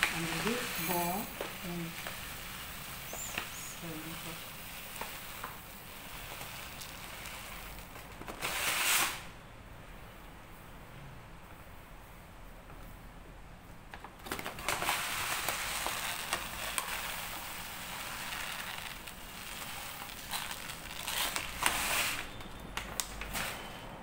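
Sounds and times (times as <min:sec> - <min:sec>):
rice pouring into glass bowl: 0:00.0 - 0:09.1, 0:14.6 - 0:22.3.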